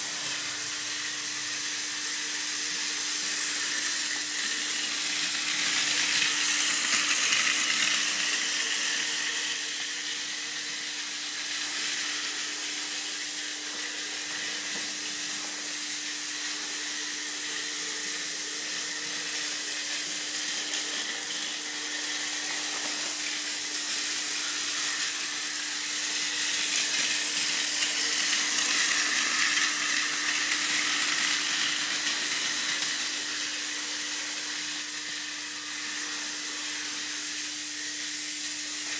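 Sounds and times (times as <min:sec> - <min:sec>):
toy train motor and gear whine: 0:00.0 - 0:38.9
wheels rattling on plastic track: 0:24.7 - 0:34.6.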